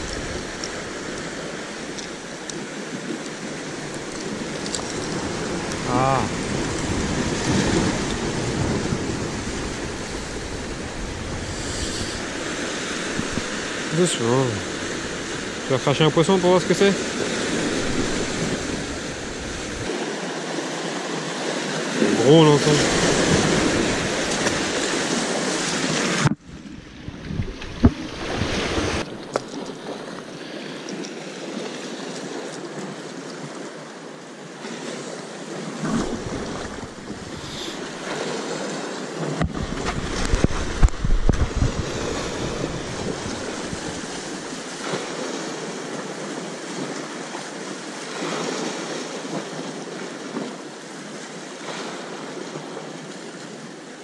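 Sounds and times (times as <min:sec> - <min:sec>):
wind rumbling on microphone: 0:00.0 - 0:13.9, 0:17.0 - 0:20.0, 0:22.7 - 0:30.3, 0:35.7 - 0:38.4, 0:39.2 - 0:45.3
sea surf washing on shore: 0:00.0 - 0:54.0.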